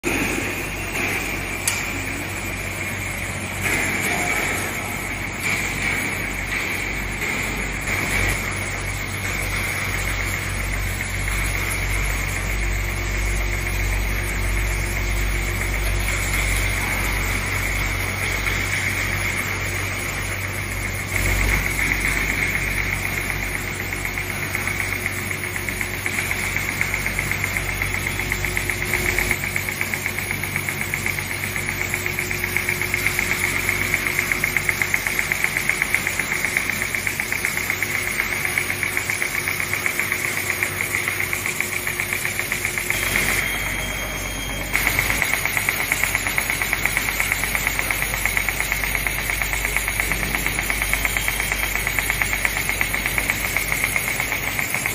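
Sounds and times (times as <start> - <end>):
machine belts and rollers running: 0.0 - 54.9.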